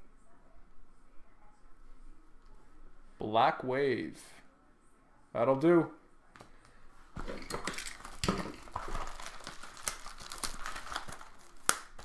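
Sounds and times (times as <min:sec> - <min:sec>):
foil wrapper crinkling: 0:07.2 - 0:12.0.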